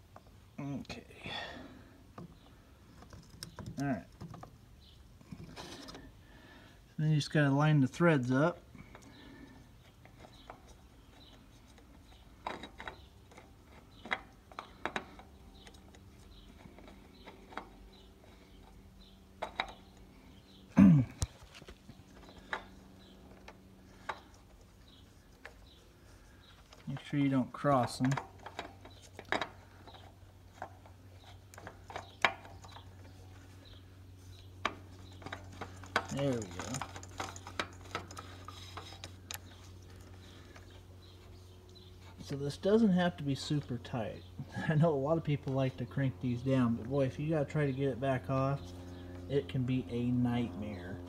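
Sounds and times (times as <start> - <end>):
oil filter scraping on threads: 8.8 - 20.6, 21.2 - 43.8.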